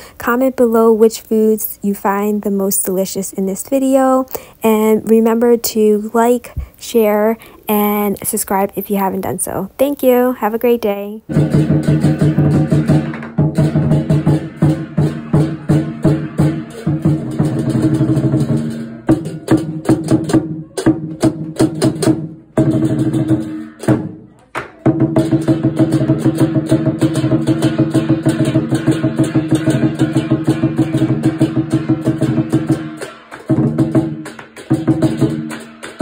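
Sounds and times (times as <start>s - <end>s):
ringing percussion: 11.3s - 22.0s, 24.8s - 36.0s
drum beaten with sticks: 11.3s - 36.0s.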